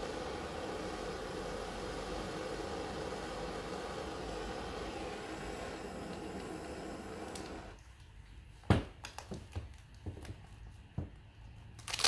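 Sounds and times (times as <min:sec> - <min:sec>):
blowtorch flame hissing: 0:00.0 - 0:07.8.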